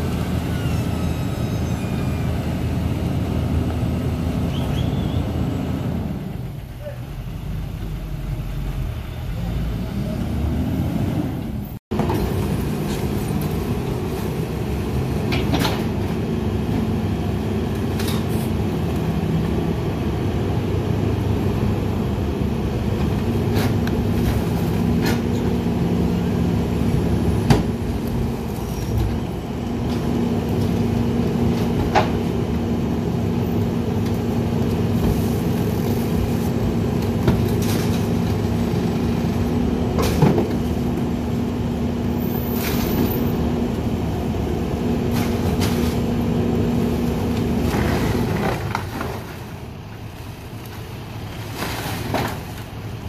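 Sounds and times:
metal clanks at truck hopper: 0:15.2 - 0:16.1, 0:23.0 - 0:25.6, 0:39.9 - 0:40.7.

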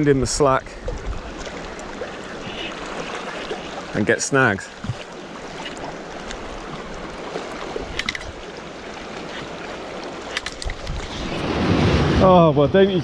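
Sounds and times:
sea water lapping against rocks: 0:00.6 - 0:12.2.

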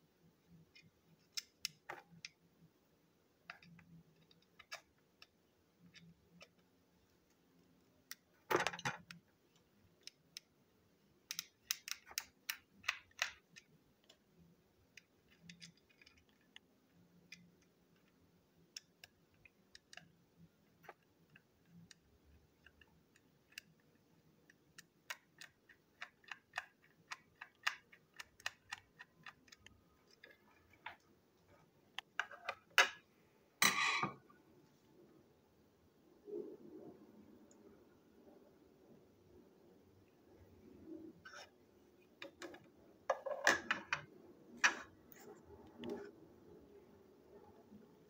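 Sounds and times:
plastic parts clicking: 0:11.2 - 0:20.2, 0:20.8 - 0:31.1.

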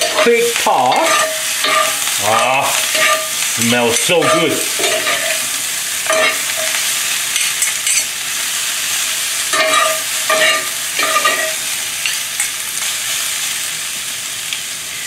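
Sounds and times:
spatula scraping a pan: 0:00.0 - 0:08.1, 0:09.5 - 0:11.6
vegetables sizzling in a skillet: 0:00.0 - 0:15.0.

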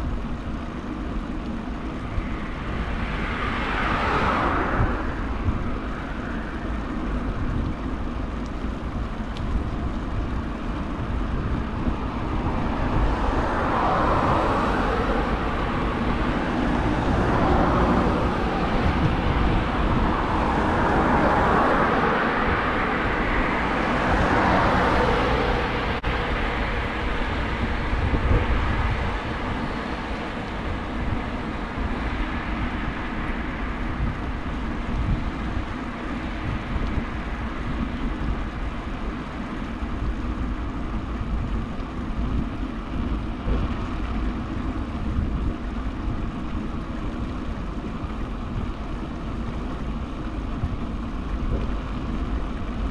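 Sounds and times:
bicycle rolling on asphalt: 0:00.0 - 0:52.9
car passing: 0:01.7 - 0:07.8, 0:11.7 - 0:39.9.

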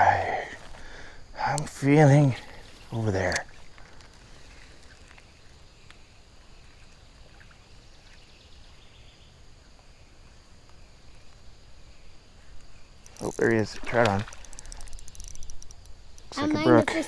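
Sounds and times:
faint ticks: 0:00.6 - 0:01.8, 0:02.4 - 0:06.1, 0:12.5 - 0:16.4.

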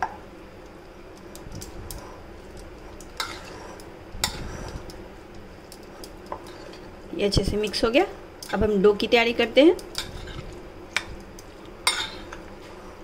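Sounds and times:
spoon stirring moist filling: 0:01.2 - 0:08.7, 0:09.8 - 0:12.6.

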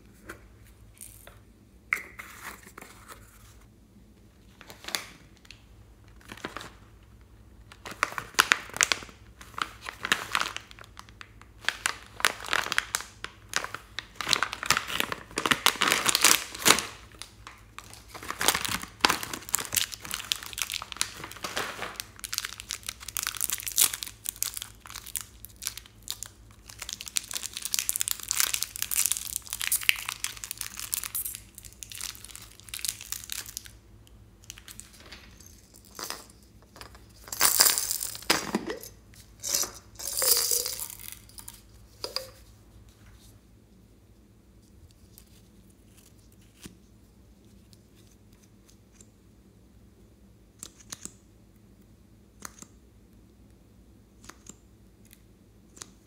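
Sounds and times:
plastic packaging crinkling: 0:07.7 - 0:33.8, 0:34.4 - 0:42.5.

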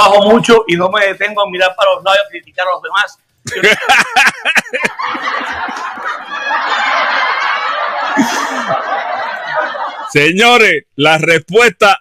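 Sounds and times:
person laughing: 0:03.5 - 0:10.1.

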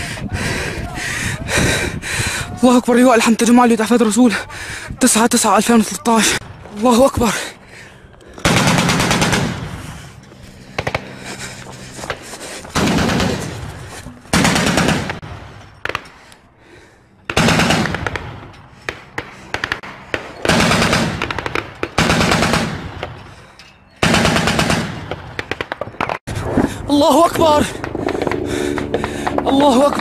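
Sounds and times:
machine gun firing bursts: 0:08.4 - 0:09.7, 0:12.8 - 0:13.6, 0:14.3 - 0:15.2, 0:17.3 - 0:18.3, 0:19.5 - 0:22.9, 0:24.0 - 0:25.8.

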